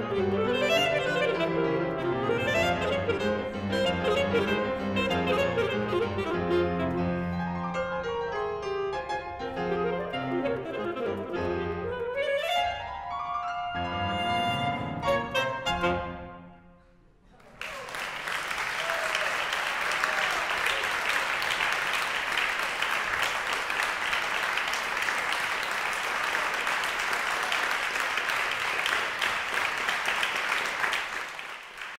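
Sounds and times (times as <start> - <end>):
saxophone and piano piece: 0.0 - 17.0
audience applause: 17.4 - 32.0.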